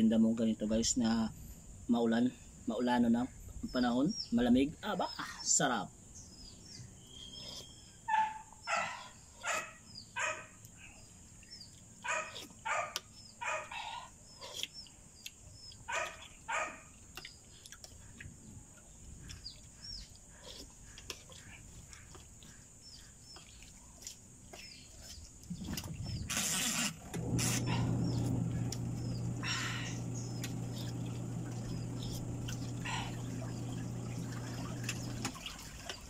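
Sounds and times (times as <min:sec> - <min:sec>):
dog barking: 0:08.1 - 0:10.6, 0:12.0 - 0:14.0, 0:15.9 - 0:16.9
steady low hum: 0:25.7 - 0:35.9.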